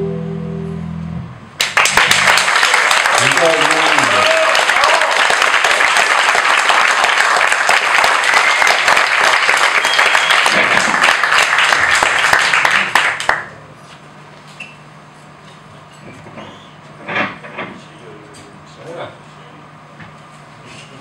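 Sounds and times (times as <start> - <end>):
audience clapping: 1.6 - 13.6.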